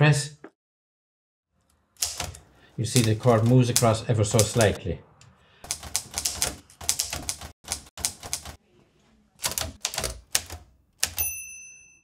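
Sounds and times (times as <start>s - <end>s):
manual typewriter typing: 2.0s - 4.8s, 5.6s - 8.6s, 9.4s - 11.3s.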